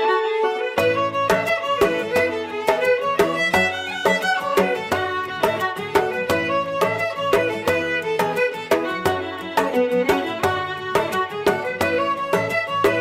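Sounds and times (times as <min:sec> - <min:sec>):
instrumental music with quick beat: 0:00.0 - 0:13.0.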